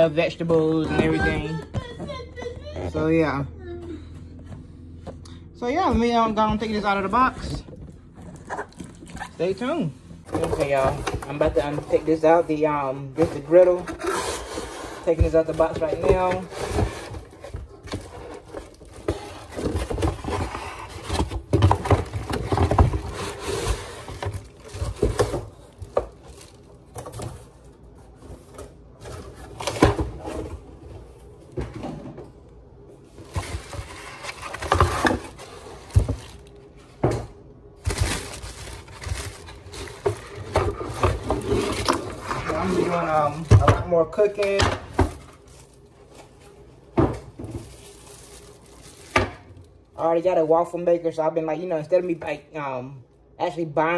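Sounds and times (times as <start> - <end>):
plastic bag crinkling: 14.0 - 28.6, 33.1 - 36.8, 37.7 - 50.0.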